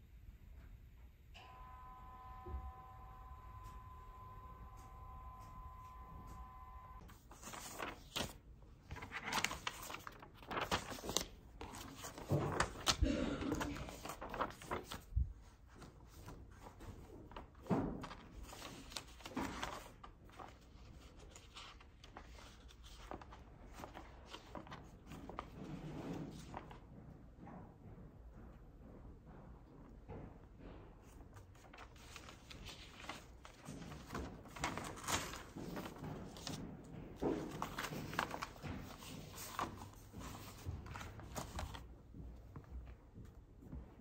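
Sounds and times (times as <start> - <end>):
book pages turning: 7.0 - 26.8, 31.1 - 36.6, 37.2 - 42.0
paper rustling and crinkling: 7.0 - 26.8, 31.0 - 42.8.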